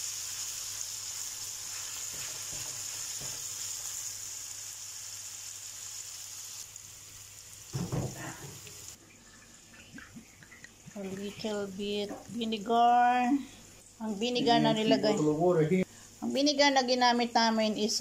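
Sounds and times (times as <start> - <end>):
vegetables sizzling in a pan: 0.0 - 9.8, 10.8 - 18.0
loud thump: 7.7 - 8.3.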